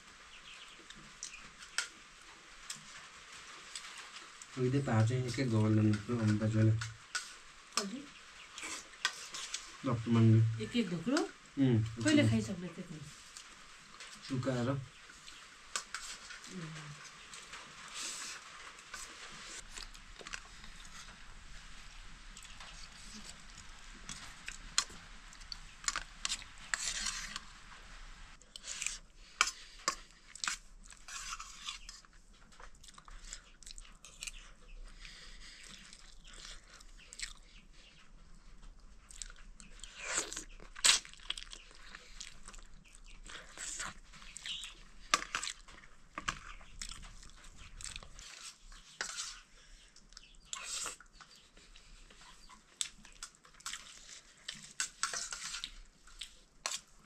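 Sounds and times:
person chewing: 5.3s - 9.8s, 15.1s - 21.2s, 22.3s - 27.5s, 28.4s - 57.0s.

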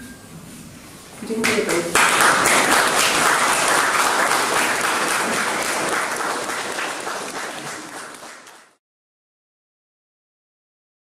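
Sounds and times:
audience applauding: 1.4s - 8.8s.

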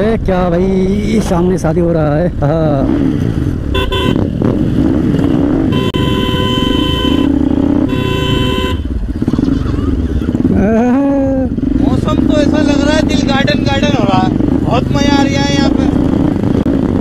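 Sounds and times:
motorcycle engine running: 0.0s - 17.0s
vehicle horn honking: 3.7s - 4.3s, 5.7s - 9.0s.

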